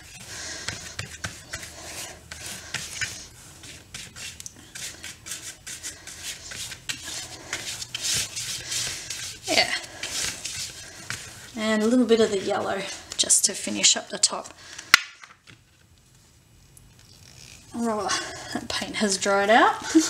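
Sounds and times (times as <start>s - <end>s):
paintbrush scrubbing on cardboard: 0.0s - 12.9s.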